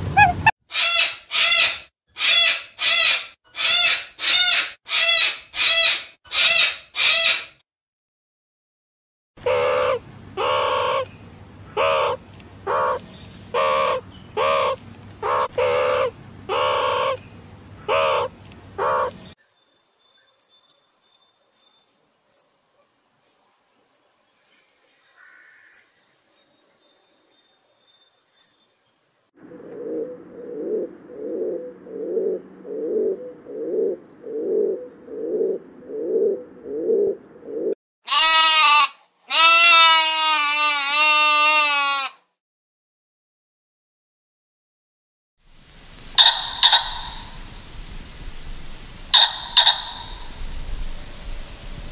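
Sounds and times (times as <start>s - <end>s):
lower animal calls: 0.0s - 7.4s, 9.4s - 11.1s, 11.7s - 17.2s, 17.8s - 19.3s, 46.1s - 47.6s, 49.1s - 50.6s
loud pitched animal calls: 0.0s - 7.5s, 9.4s - 11.1s, 11.7s - 17.2s, 17.8s - 19.3s, 38.1s - 42.1s, 46.1s - 47.5s, 49.1s - 50.6s
kingfisher chirping: 19.8s - 29.3s, 46.2s - 47.4s, 49.1s - 50.5s
sheep bleating: 38.1s - 42.2s.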